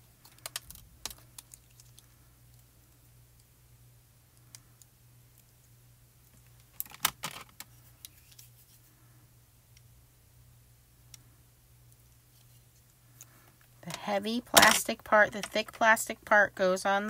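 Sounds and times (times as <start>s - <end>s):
faint low hum: 0.0s - 17.0s
plastic clicks and rattles: 0.2s - 2.0s, 6.6s - 7.7s.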